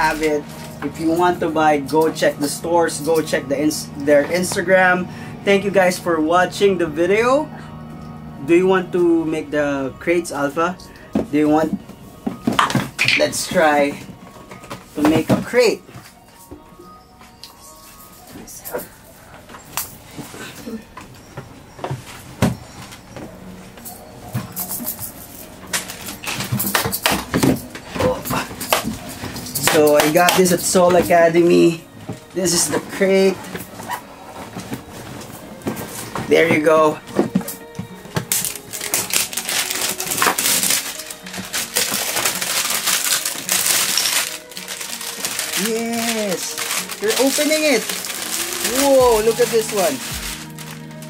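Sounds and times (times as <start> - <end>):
objects knocking and clunking: 11.1 - 13.2
plastic wrapping tearing and crinkling: 38.2 - 51.0.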